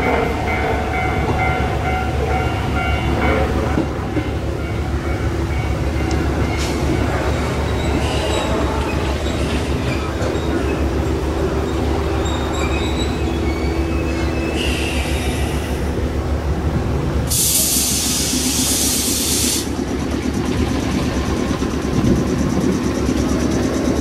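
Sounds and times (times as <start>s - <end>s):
train wheel squeal: 0.0s - 15.9s, 17.3s - 24.0s
train humming: 0.0s - 24.0s
air brake hiss: 14.6s - 15.8s, 17.3s - 19.7s.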